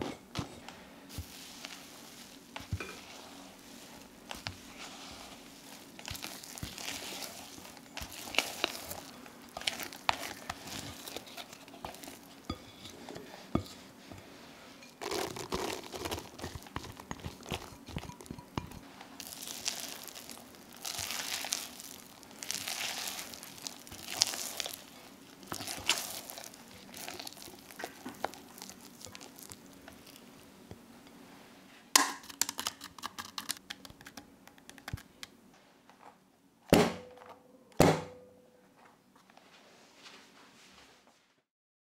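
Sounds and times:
spatula stirring thick batter: 1.1 - 30.5.

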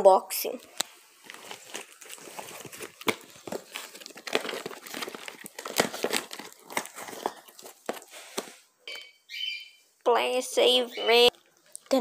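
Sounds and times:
cardboard box crinkling and scraping: 1.2 - 8.6.

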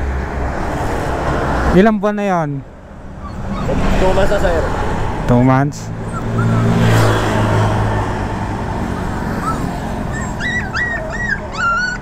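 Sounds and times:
traffic noise: 0.0 - 12.0
puppies whimpering: 3.1 - 4.0, 5.3 - 7.1, 8.8 - 12.0.

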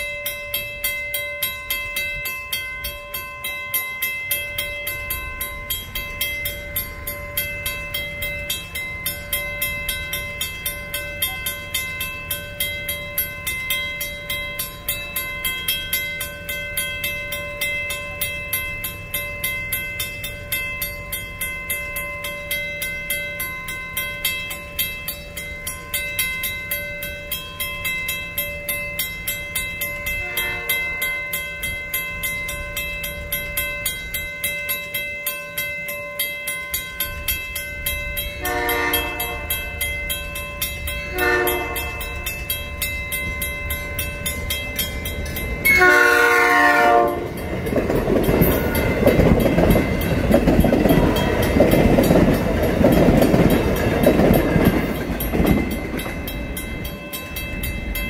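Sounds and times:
crossing bell ringing: 0.0 - 58.0
train rail noise: 0.0 - 58.0
train horn blasts: 30.2 - 31.0, 38.4 - 39.7, 41.1 - 42.2, 45.6 - 47.4.

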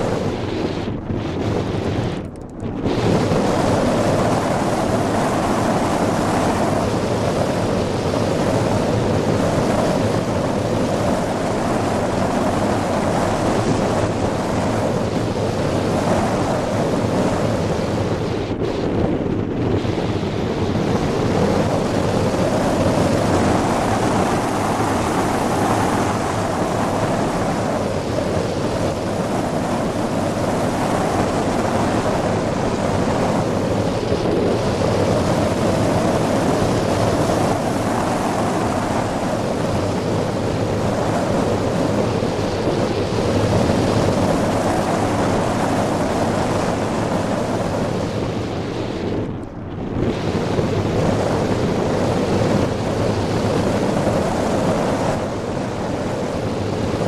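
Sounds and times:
wind roaring over microphone: 0.0 - 57.0.

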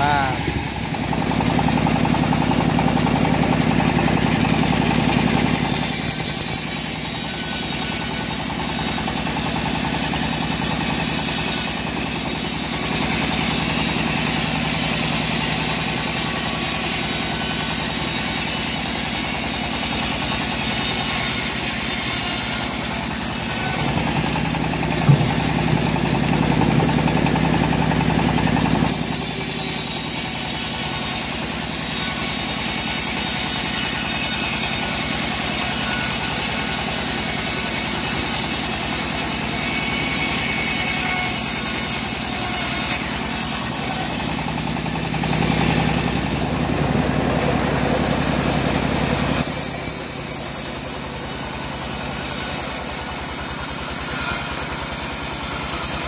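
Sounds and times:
bandsaw ripping through log: 0.0 - 25.6, 28.8 - 44.4, 49.4 - 56.0
sharp knock: 25.0 - 25.5.

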